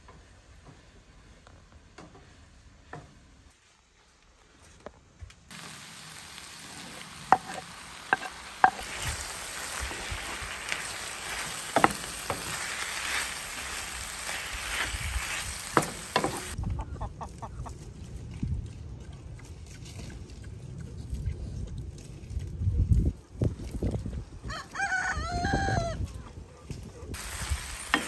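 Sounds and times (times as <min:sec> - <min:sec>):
vegetables sizzling in a frying pan: 0:05.5 - 0:16.6, 0:27.2 - 0:28.0
wooden spoon knocking on pan: 0:07.3 - 0:08.8, 0:11.6 - 0:12.7, 0:15.7 - 0:16.5.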